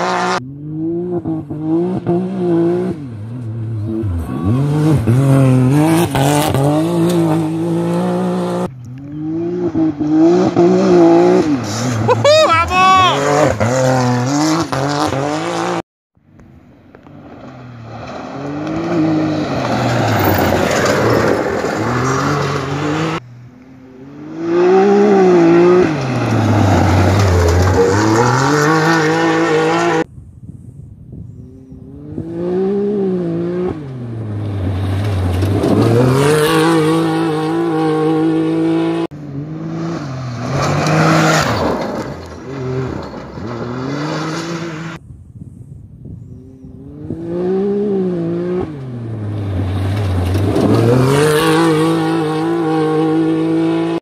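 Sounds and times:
utv engines racing past: 0.0 - 15.8, 17.1 - 23.2, 23.8 - 30.1, 31.5 - 45.0, 46.4 - 54.0.

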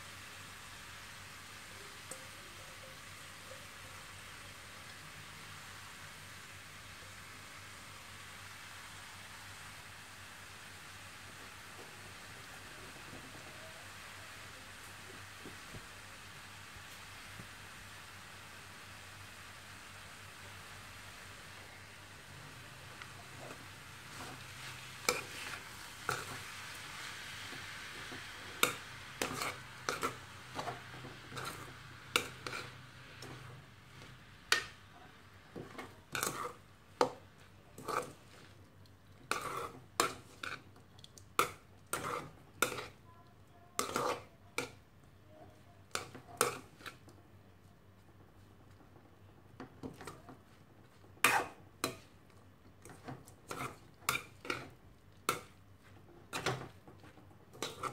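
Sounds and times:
spatula scraping metal pan: 28.5 - 33.4, 36.1 - 36.6, 37.8 - 38.2, 39.3 - 40.6, 41.4 - 43.0, 43.8 - 44.3, 57.6 - 57.9.

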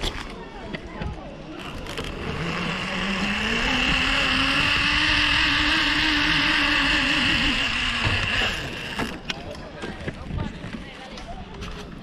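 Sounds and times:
zip-line trolley whirring on cable: 1.5 - 9.5.

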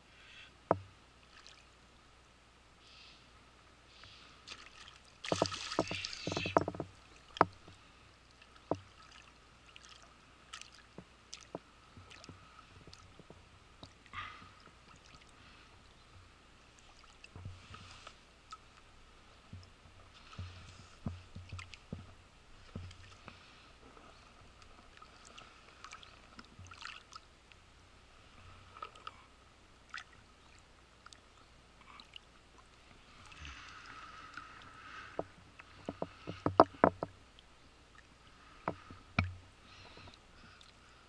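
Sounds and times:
water splashing in stream: 4.4 - 7.6, 8.3 - 13.1, 24.9 - 27.2
light splashes and clicks: 4.4 - 15.4, 19.5 - 23.4, 24.6 - 27.6, 31.0 - 31.3.

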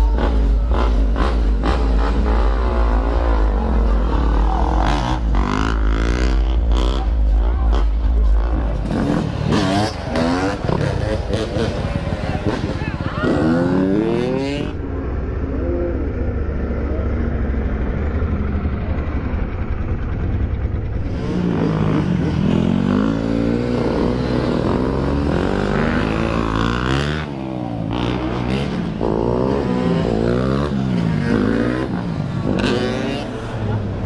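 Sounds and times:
low engine rumble: 0.0 - 13.8, 14.4 - 25.2
dirt bikes revving past: 0.0 - 34.0.

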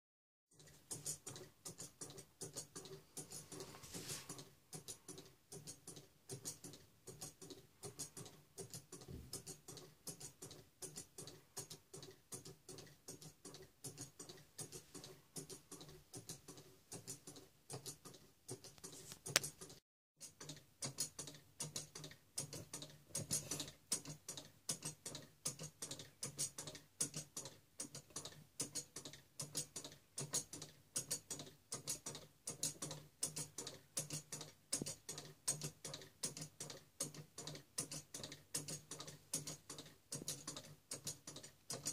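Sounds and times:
wooden escapement ticking: 0.6 - 3.7, 4.3 - 41.9.

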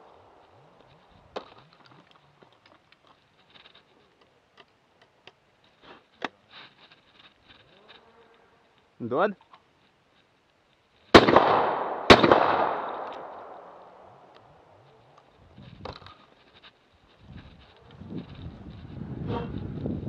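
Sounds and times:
shells being loaded: 11.1 - 14.4
shotgun action clicking: 11.2 - 14.5.

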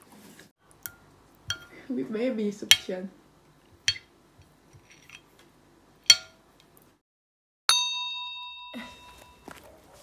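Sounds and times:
spoon clinking ceramic bowl: 3.9 - 4.1
bright bell-like ding: 7.7 - 9.5.

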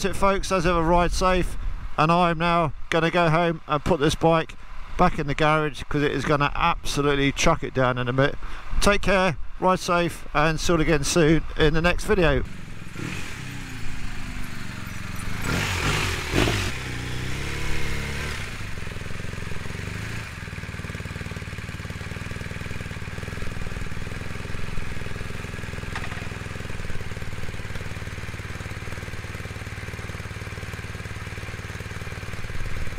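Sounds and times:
motorcycle engine running: 11.4 - 32.9
knocks: 25.9 - 26.4.

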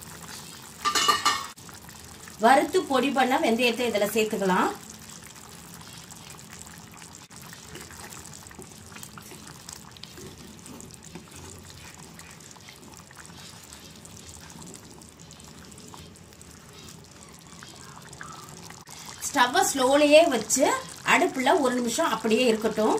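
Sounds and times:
spatula stirring: 0.0 - 1.6, 4.8 - 19.9
curry bubbling and sloshing: 0.0 - 22.9.

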